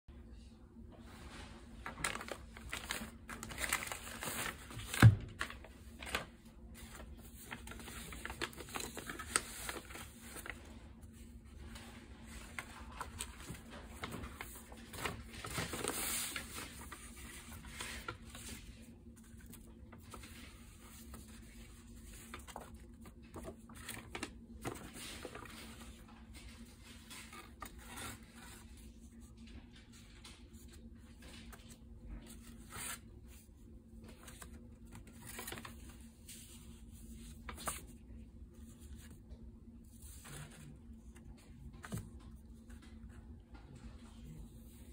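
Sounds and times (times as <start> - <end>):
packaging rustling and tearing: 1.8 - 10.7, 12.4 - 20.4.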